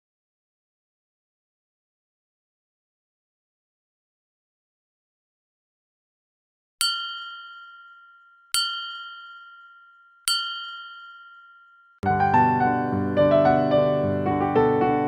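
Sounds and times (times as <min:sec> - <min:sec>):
chime dinging: 0:06.8 - 0:12.0
piano music: 0:12.0 - 0:15.0.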